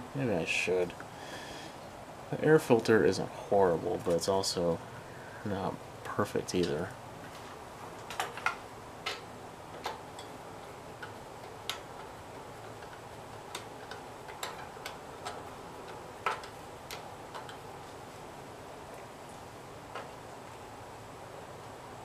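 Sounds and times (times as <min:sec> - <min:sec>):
light clicks and taps: 0:11.0 - 0:17.6.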